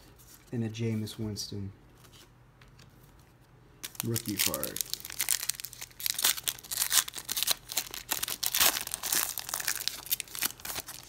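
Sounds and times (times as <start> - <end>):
foil wrapper tearing and crinkling: 3.8 - 11.0.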